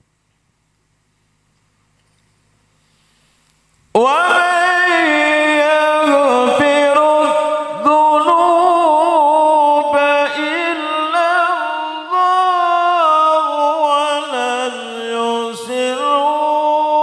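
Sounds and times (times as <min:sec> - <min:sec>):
man reciting melodically: 0:03.9 - 0:17.0.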